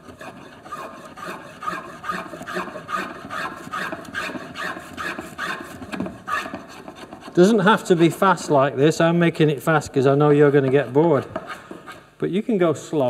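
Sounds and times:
spokeshave scraping wood: 0.0 - 8.6, 10.2 - 12.2.

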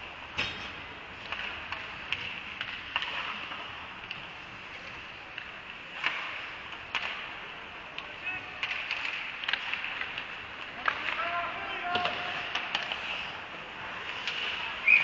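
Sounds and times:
hockey sticks and puck clacking: 0.0 - 15.0
skates hissing on ice: 12.2 - 15.0.

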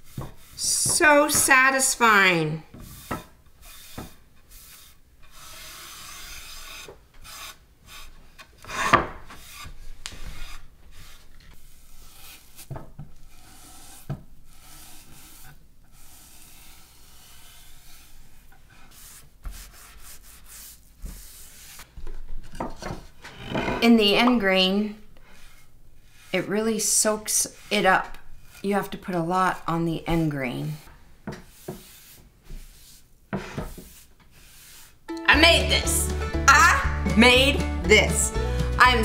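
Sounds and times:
cloth scrubbing wooden board: 0.0 - 2.2, 25.3 - 30.3.

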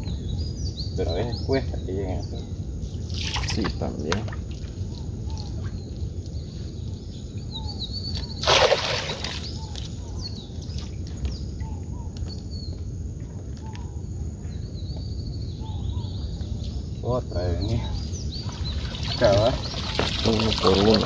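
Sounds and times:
birds chirping: 0.0 - 21.0
net splashing into water: 8.4 - 9.8, 18.5 - 21.0.

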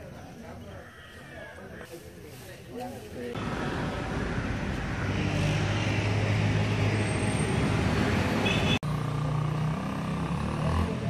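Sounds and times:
road traffic noise: 1.8 - 11.0
vehicle engine running: 3.4 - 6.9.

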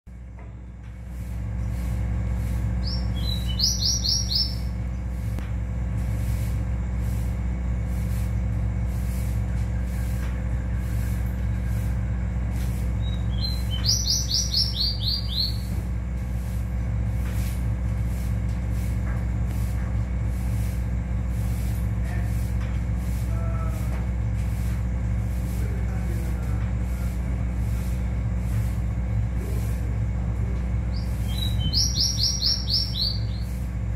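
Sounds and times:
steady low hum: 0.1 - 33.9
small bird singing high notes: 2.8 - 4.8, 13.0 - 15.7, 30.9 - 33.5.

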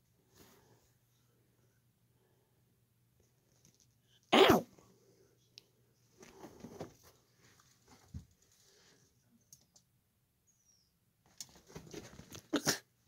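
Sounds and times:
squirrel scuffling: 11.2 - 12.5.

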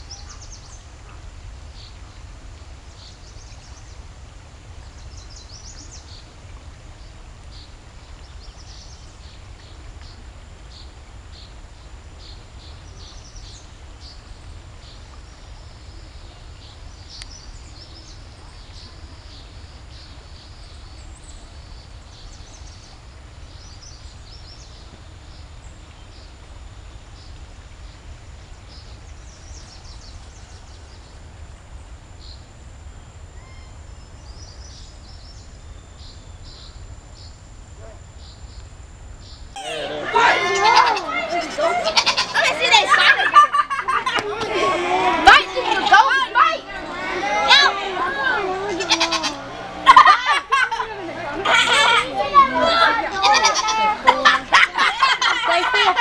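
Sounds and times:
birds chirping: 0.0 - 4.1, 33.4 - 56.0
wind rumble on microphone: 0.0 - 39.6.

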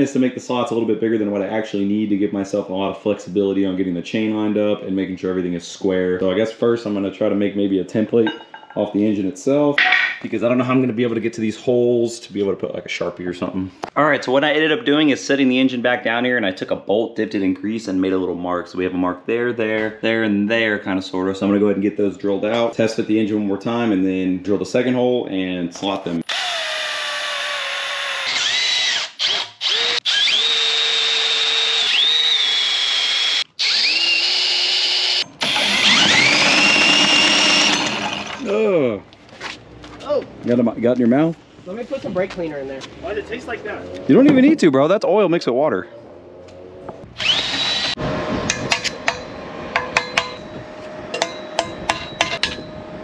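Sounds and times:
electric drill whining: 26.2 - 38.4, 47.1 - 49.2.

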